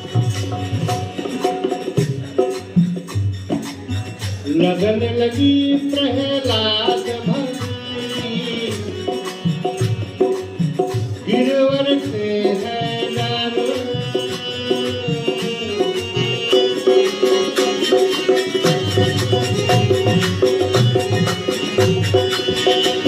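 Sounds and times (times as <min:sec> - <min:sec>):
barrel drum beat: 0:00.0 - 0:23.0
harmonium chords: 0:00.0 - 0:23.0
man singing: 0:04.5 - 0:09.8, 0:11.2 - 0:17.0.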